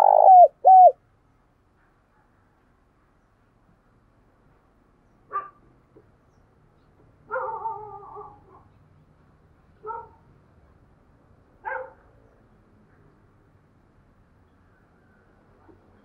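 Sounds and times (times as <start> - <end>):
dove cooing: 0.0 - 1.0.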